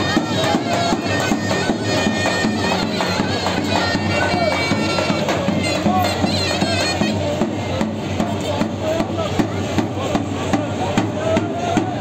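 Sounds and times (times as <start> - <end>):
shrill reed instrument melody: 0.0 - 7.3
crowd in background: 0.0 - 12.0.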